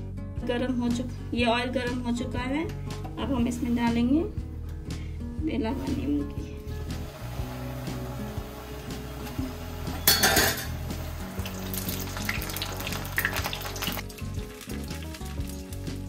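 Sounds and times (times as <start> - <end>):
dough sizzling in hot oil: 6.9 - 16.0
metal spoon stirring oil: 9.9 - 16.0.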